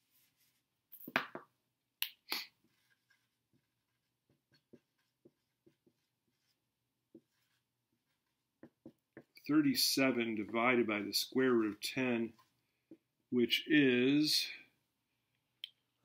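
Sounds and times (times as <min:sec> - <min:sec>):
marker writing on a whiteboard: 0:02.1 - 0:13.3.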